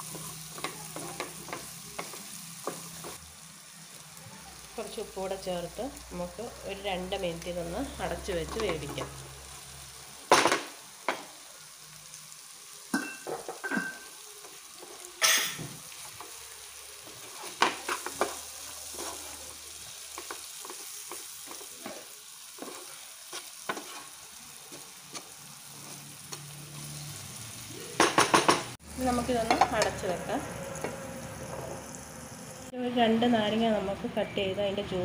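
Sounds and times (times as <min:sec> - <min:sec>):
oil sizzling: 0:00.0 - 0:34.0
spatula scraping frying pan: 0:14.7 - 0:27.2.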